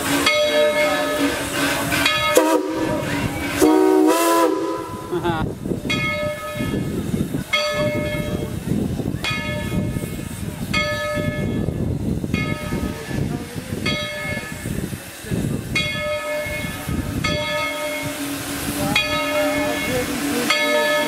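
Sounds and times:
locomotive bell ringing: 0:00.0 - 0:03.6, 0:05.9 - 0:06.9, 0:07.5 - 0:08.6, 0:09.2 - 0:11.8, 0:12.4 - 0:13.0, 0:13.8 - 0:14.7, 0:15.8 - 0:21.0
low rumble of steam and wind: 0:00.0 - 0:21.0.

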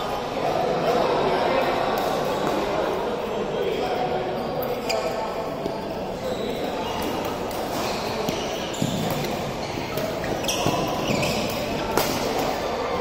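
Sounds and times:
sneakers squeaking on court: 0:04.1 - 0:13.0
racket hitting shuttlecock: 0:06.9 - 0:12.6.

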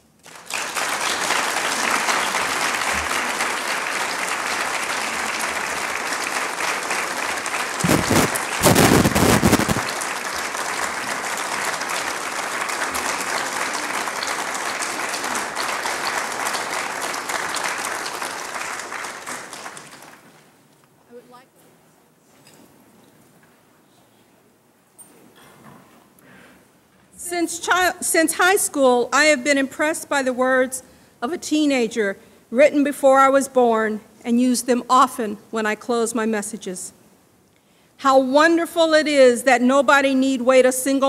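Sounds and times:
congregation applauding: 0:00.0 - 0:20.6.

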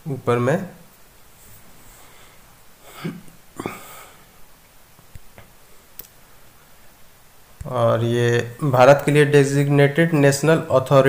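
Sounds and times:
person breathing: 0:01.6 - 0:03.0, 0:03.6 - 0:04.4.

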